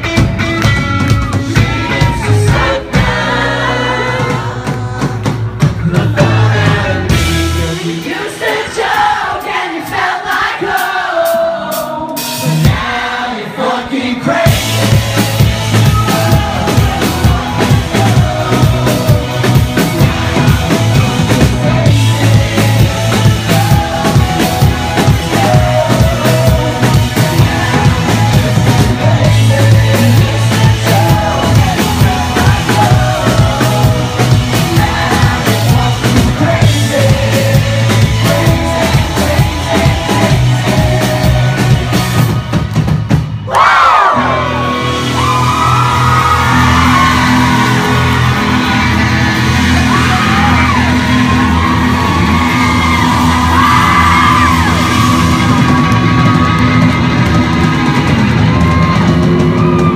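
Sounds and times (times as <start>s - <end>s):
electric guitars: 0.0s - 8.3s, 14.4s - 43.2s, 43.9s - 59.9s
bass guitar: 0.0s - 9.2s, 11.7s - 13.1s, 14.3s - 59.9s
drum kit: 0.0s - 59.9s
person singing: 1.2s - 42.4s.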